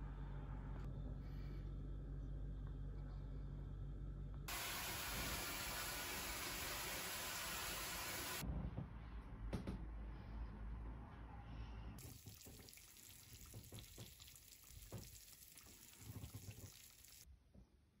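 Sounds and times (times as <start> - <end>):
faint sizzling and crackling: 12.0 - 17.3.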